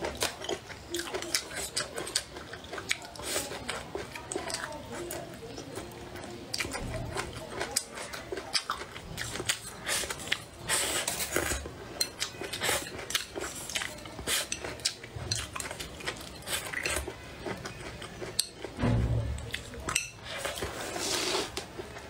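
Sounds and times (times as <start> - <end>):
person eating and chewing: 0.0 - 18.8, 19.4 - 22.0.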